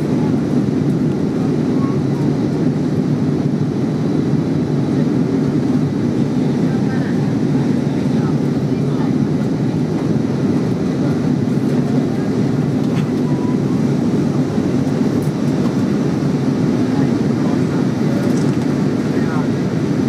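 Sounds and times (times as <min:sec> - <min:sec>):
airliner cabin roar: 0:00.0 - 0:20.0.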